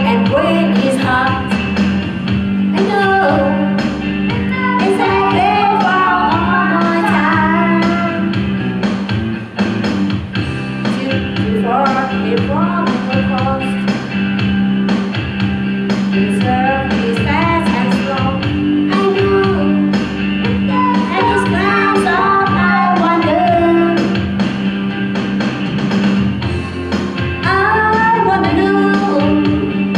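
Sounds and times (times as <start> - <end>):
rock backing track: 0.0 - 29.9
girl singing into microphone: 2.7 - 3.7, 4.3 - 8.2, 16.3 - 19.8, 20.6 - 24.1, 27.4 - 29.8.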